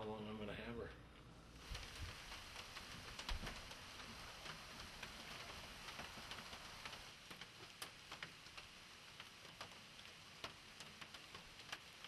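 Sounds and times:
low hiss: 0.0 - 12.0
faint irregular ticks: 1.7 - 12.0.

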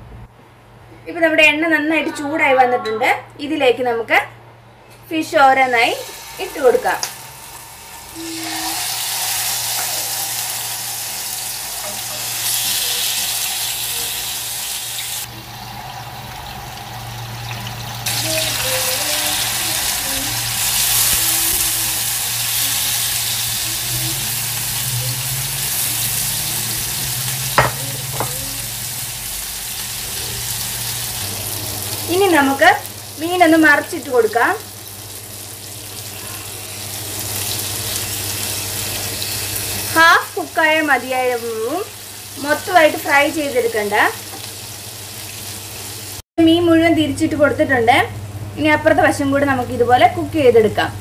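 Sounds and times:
fish sizzling in oil: 5.8 - 46.2.

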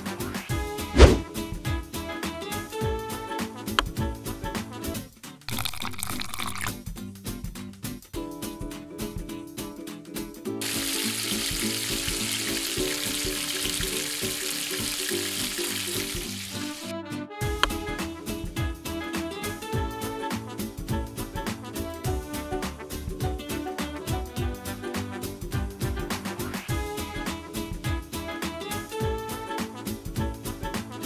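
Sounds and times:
upbeat background music: 0.0 - 31.0
egg sizzling in hot oil: 5.5 - 6.7, 10.6 - 16.9.

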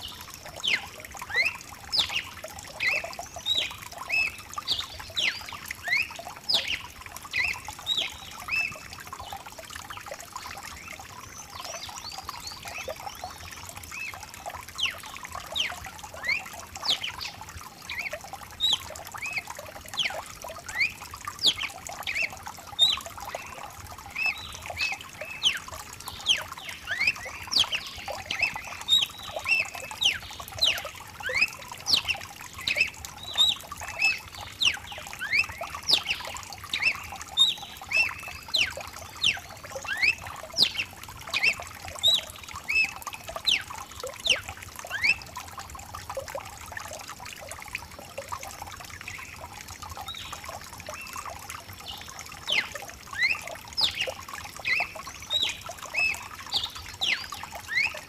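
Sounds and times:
bird singing whistled notes: 0.6 - 8.8, 15.6 - 45.2, 52.4 - 58.0.

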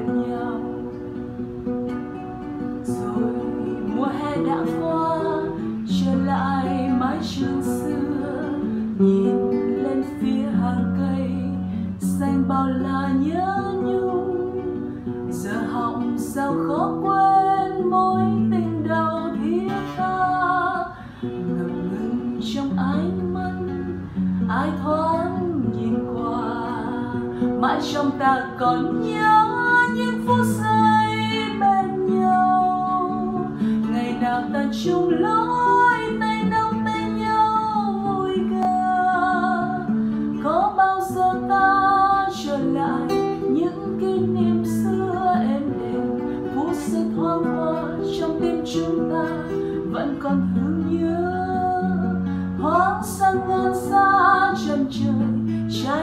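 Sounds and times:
classical guitar chords: 0.0 - 56.0
woman singing: 0.0 - 56.0.

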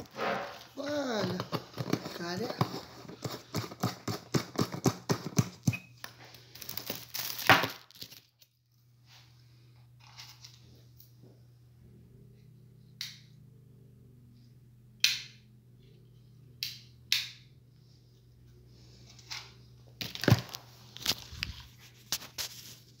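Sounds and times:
low steady hum: 5.8 - 23.0.

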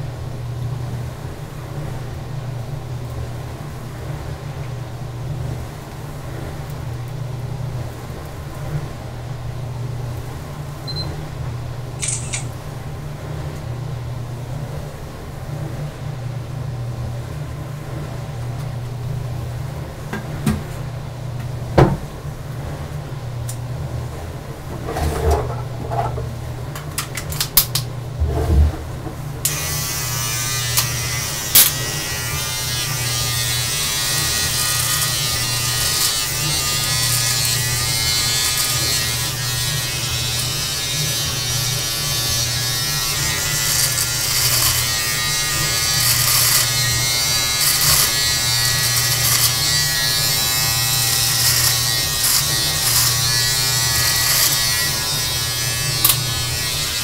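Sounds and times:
electric beard trimmer buzzing: 12.0 - 12.4, 29.4 - 57.0
brief crackles: 12.0 - 12.6.

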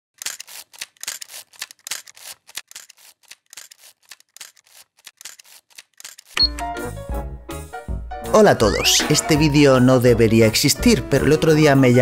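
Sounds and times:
quick clicks: 0.2 - 6.7
scratchy rustles: 0.3 - 6.4.

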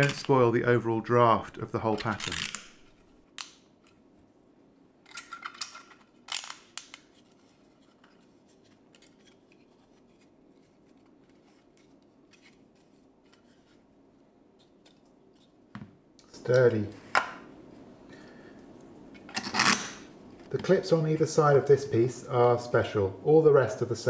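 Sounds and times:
plastic parts clicking and scraping: 5.1 - 9.8.

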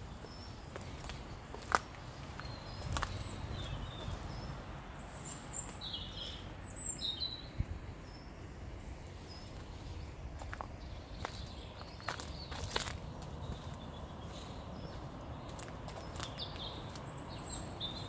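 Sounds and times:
footstep on path: 0.0 - 4.5, 9.4 - 18.0
outdoor background rush: 0.0 - 18.0
small birds chirping: 0.0 - 18.0.

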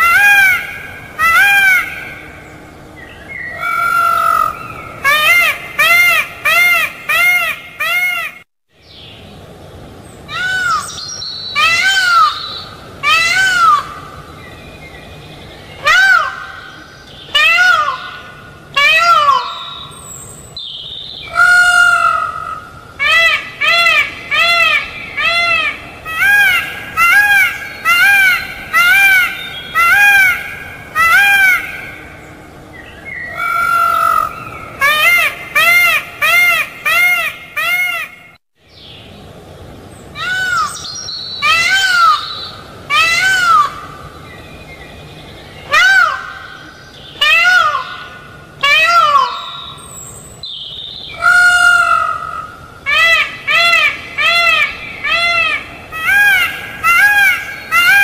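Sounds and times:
peacock calling: 0.0 - 9.1, 10.2 - 58.0.

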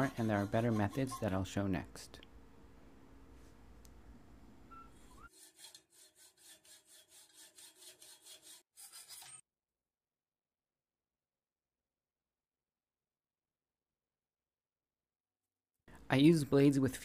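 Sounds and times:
hacksaw cutting metal: 5.2 - 9.4.

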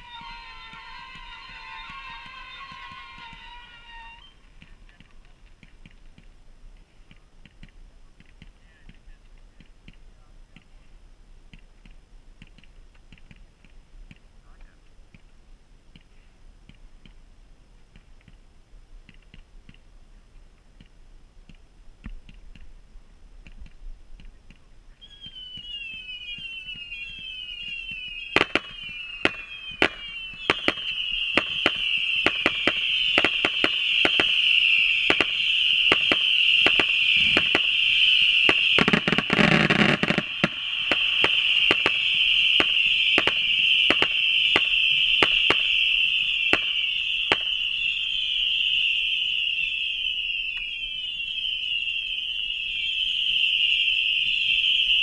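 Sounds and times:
falling firework whistles: 0.0 - 6.3, 25.0 - 55.0
continuous high firework whistle: 0.0 - 15.3, 23.4 - 55.0
fireworks sharp reports: 0.0 - 15.3, 24.2 - 55.0
faint fireworks crackles: 0.0 - 55.0.

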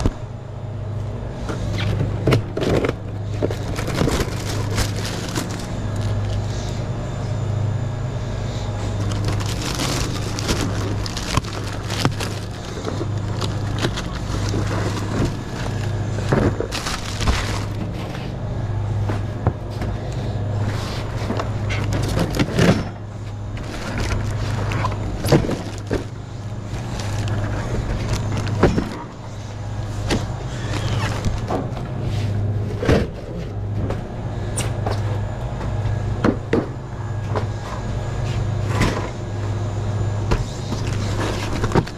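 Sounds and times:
steady low hum: 0.0 - 41.9
plastic wrap crinkling: 3.4 - 6.7, 8.9 - 18.0, 23.5 - 26.1, 26.7 - 28.6
bottle packs knocking and clattering: 9.1 - 17.9.

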